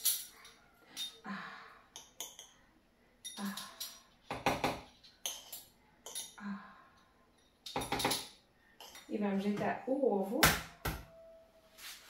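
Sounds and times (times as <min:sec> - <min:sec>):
metal spoon clinking on glass jar: 0:05.0 - 0:06.4.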